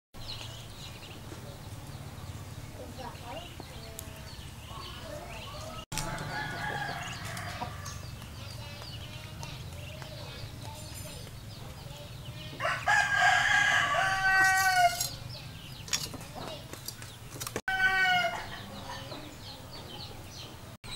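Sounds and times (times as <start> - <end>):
bird calls: 0.2 - 20.9
rooster crowing: 5.6 - 8.0, 12.6 - 15.1, 17.7 - 18.6.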